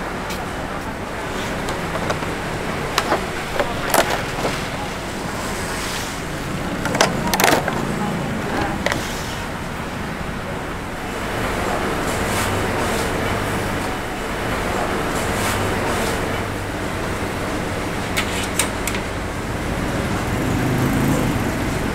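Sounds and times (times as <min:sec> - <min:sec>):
plastic container crackling and clicking: 0:01.5 - 0:04.9, 0:06.8 - 0:09.2.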